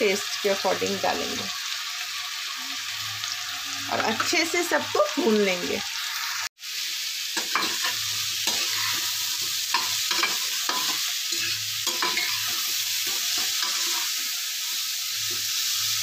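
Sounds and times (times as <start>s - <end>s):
food sizzling in oil: 0.0s - 16.0s
metal spatula scraping pan: 7.4s - 14.4s.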